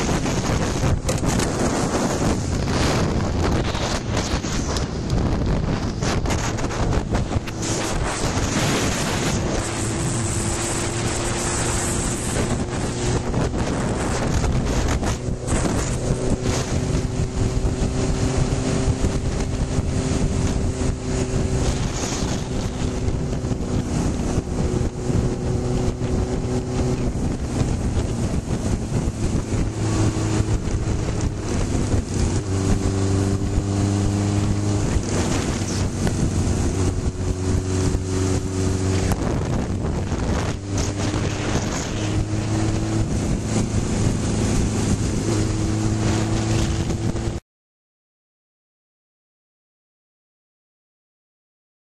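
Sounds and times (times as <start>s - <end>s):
motorcycle engine running: 0.0s - 47.4s
wind buffeting microphone: 0.0s - 47.4s.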